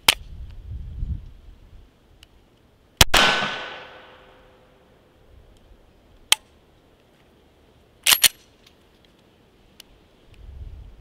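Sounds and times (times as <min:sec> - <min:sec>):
pistol shot: 0:03.0 - 0:04.4
gunshot echo: 0:03.0 - 0:04.6.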